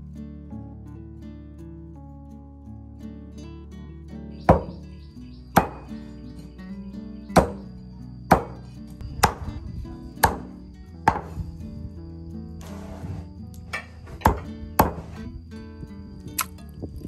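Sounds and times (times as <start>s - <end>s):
cleaver chopping on wooden block: 4.5s - 4.8s, 5.6s - 5.9s, 7.4s - 7.6s, 8.3s - 8.6s, 9.2s - 9.4s, 10.2s - 10.5s, 11.1s - 11.3s, 14.2s - 15.1s.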